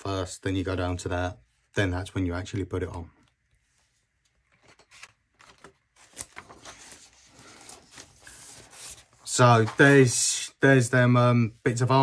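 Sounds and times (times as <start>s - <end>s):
paper pages rustling: 3.6s - 10.2s.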